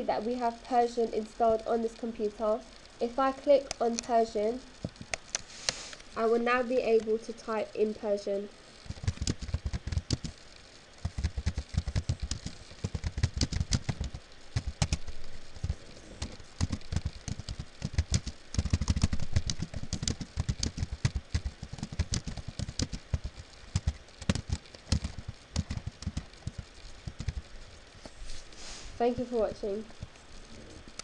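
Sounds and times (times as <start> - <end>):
keyboard keys clicking: 11.0 - 15.0, 16.2 - 27.4.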